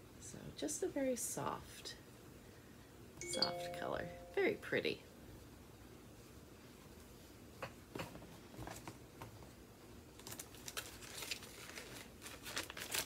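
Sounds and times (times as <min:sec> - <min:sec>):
fabric and paper rustling: 0:10.1 - 0:13.0.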